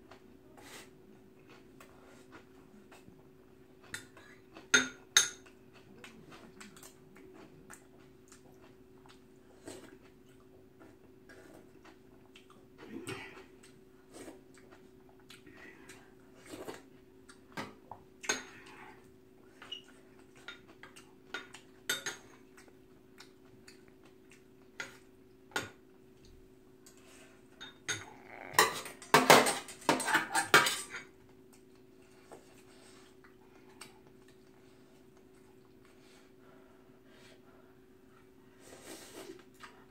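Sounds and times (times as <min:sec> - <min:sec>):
metal utensils clinking on bowl: 0:27.6 - 0:31.1.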